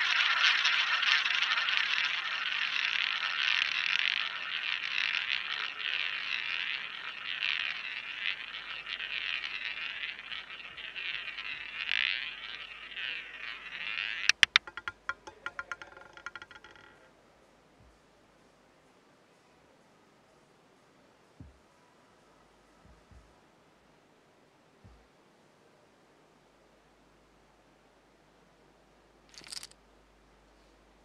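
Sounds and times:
roulette ball rolling: 0.0s - 17.1s, 29.3s - 29.7s.

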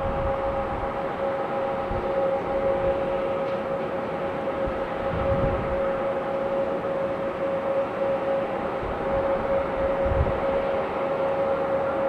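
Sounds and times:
jet engines whining: 0.0s - 12.0s.

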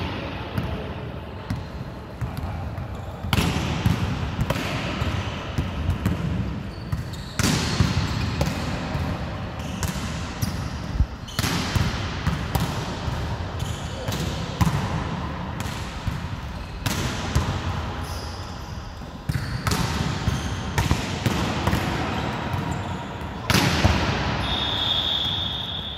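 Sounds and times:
balls bouncing on court floor: 0.0s - 18.2s, 19.0s - 25.8s
volleyballs struck by hand: 3.3s - 10.4s, 19.3s - 22.7s.

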